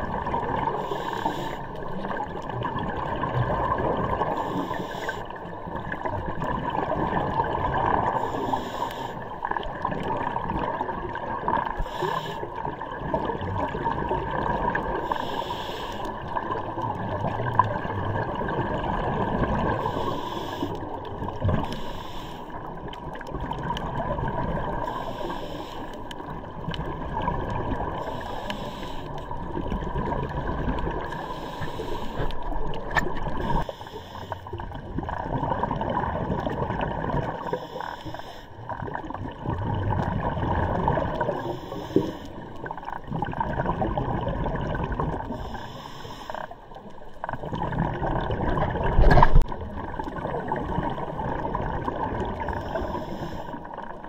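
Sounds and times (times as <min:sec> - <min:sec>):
exhaled bubbles: 0:00.0 - 0:08.6, 0:09.2 - 0:15.3, 0:16.0 - 0:21.9, 0:22.6 - 0:25.1, 0:26.0 - 0:45.8, 0:46.4 - 0:54.0
diver breathing through regulator: 0:00.6 - 0:01.9, 0:04.2 - 0:05.4, 0:08.0 - 0:09.4, 0:11.7 - 0:12.8, 0:14.9 - 0:16.3, 0:19.6 - 0:22.7, 0:24.6 - 0:26.2, 0:27.9 - 0:29.4, 0:30.9 - 0:34.7, 0:37.2 - 0:38.7, 0:40.8 - 0:42.9, 0:45.2 - 0:46.9, 0:52.3 - 0:54.0.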